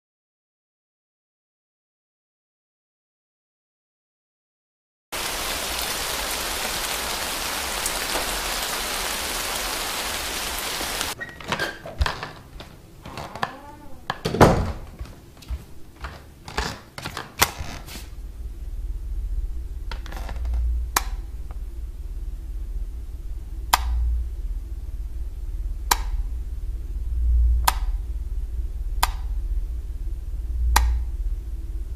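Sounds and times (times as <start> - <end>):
steady hiss: 5.2 - 11.2, 17.7 - 31.9
indoor knocks and thumps: 11.2 - 18.1
low hum: 17.4 - 31.9
sharp clicks: 20.9 - 21.6, 23.7 - 24.0, 25.9 - 26.2, 27.6 - 28.0, 29.0 - 29.4, 30.7 - 31.1.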